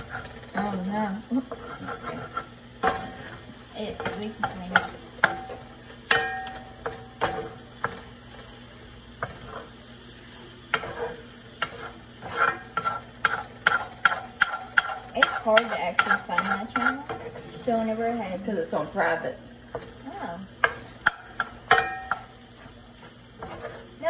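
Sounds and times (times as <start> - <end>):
faint frying sizzle: 0.0 - 24.0
spatula scraping a pan: 0.0 - 24.0
spatula knocking against pan: 3.9 - 8.1, 11.6 - 17.3, 20.6 - 22.3.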